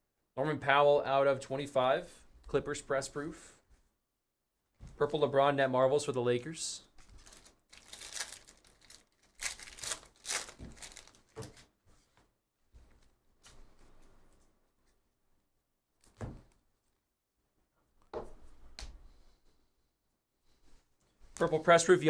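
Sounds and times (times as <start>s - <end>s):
cards rustling: 7.0s - 11.7s
foil pack tearing open: 7.1s - 11.4s.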